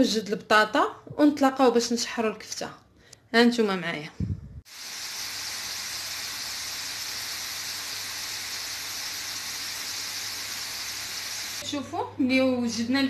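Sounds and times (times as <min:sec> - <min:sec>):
chips sizzling in hot oil: 0:04.7 - 0:11.6.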